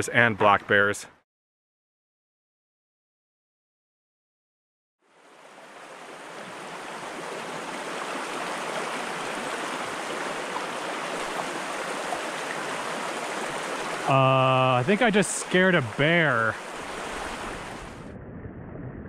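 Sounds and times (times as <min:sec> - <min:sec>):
water rushing over stones: 0:05.2 - 0:18.0.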